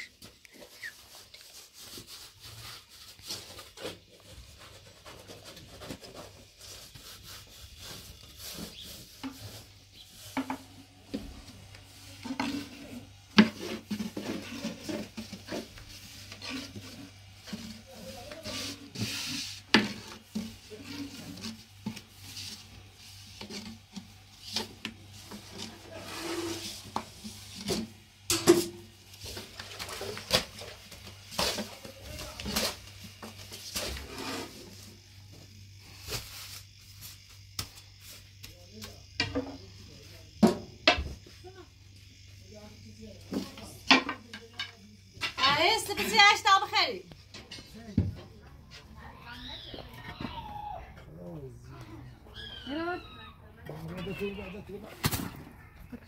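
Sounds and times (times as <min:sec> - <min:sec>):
scraping and rubbing: 0:00.0 - 0:38.5.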